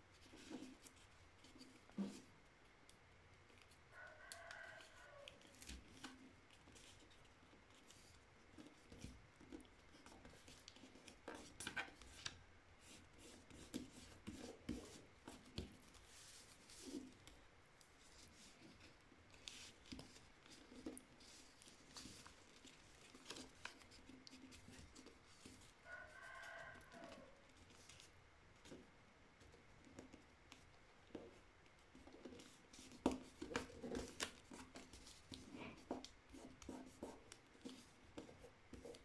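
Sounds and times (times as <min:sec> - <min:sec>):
paper rustling and crinkling: 0:13.3 - 0:28.1.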